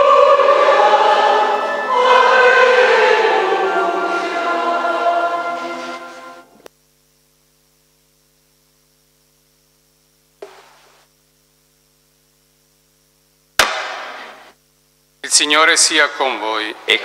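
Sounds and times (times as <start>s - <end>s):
choir singing: 0.0s - 6.6s
faint electrical hum: 0.0s - 17.0s
sharp knock: 13.6s - 14.5s.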